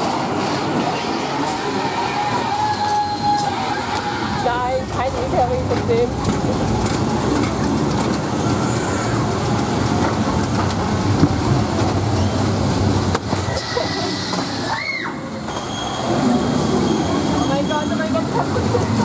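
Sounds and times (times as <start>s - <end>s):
ride car rattling along track: 0.0s - 19.0s
high squeal: 13.4s - 18.1s.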